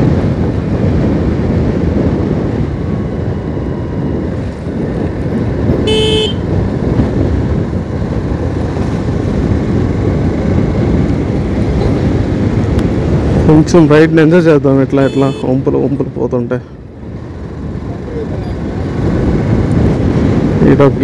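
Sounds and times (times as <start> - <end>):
motorcycle engine rumble: 0.0 - 21.0
horn beep: 5.8 - 6.5, 15.0 - 15.6.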